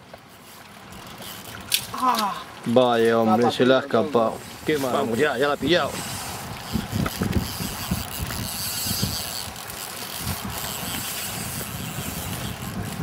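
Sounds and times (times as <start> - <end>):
fly reel drag ratcheting: 0.2 - 2.4, 4.4 - 13.0
wind buffeting microphone: 4.4 - 13.0.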